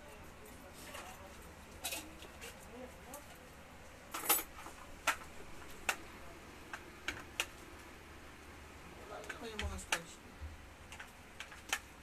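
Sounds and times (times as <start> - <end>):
comb tapping: 9.2 - 11.9.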